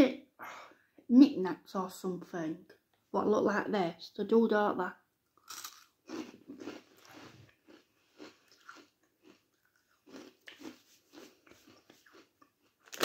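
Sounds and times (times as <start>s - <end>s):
person chewing crunchy crisps: 5.4s - 13.0s.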